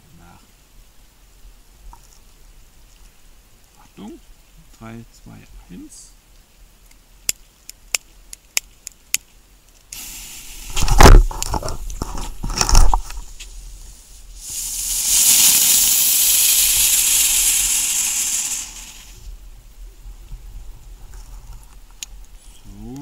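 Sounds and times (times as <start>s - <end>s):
firework spinner hissing: 9.9s - 19.3s
loud rustling and bumps: 10.7s - 13.6s.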